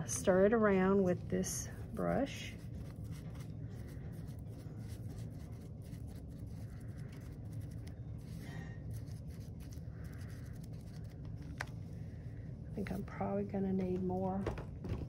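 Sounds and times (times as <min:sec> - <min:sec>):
steady low hum: 0:00.0 - 0:15.0
brush scraping and dabbing: 0:00.4 - 0:11.8.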